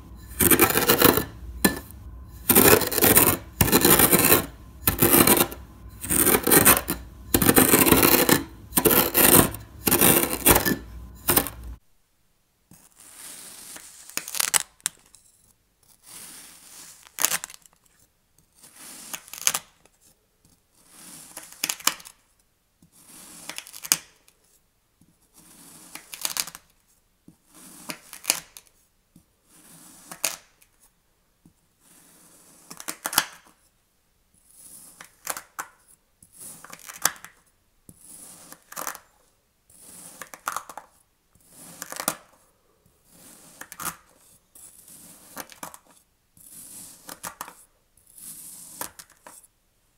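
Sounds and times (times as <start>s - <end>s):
glass crunching into sand: 0.1s - 11.6s.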